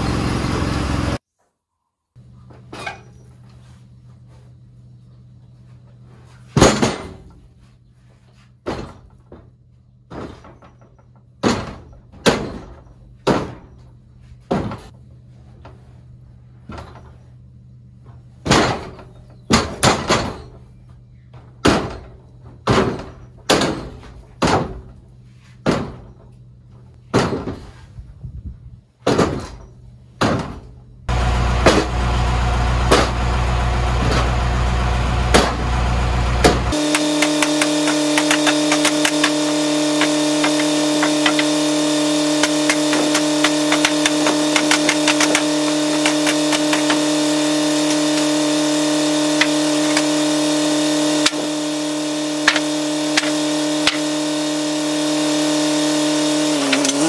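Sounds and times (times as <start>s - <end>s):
sawmill engine running: 0.0s - 1.2s, 31.1s - 57.0s
wooden boards clacking: 10.1s - 13.8s, 36.4s - 50.4s, 52.4s - 54.2s.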